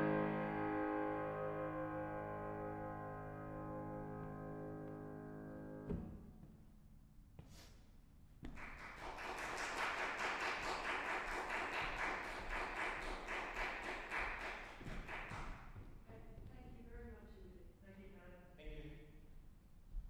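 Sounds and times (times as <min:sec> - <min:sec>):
piano chord ringing: 0:00.0 - 0:05.9
audience applause: 0:08.6 - 0:15.7.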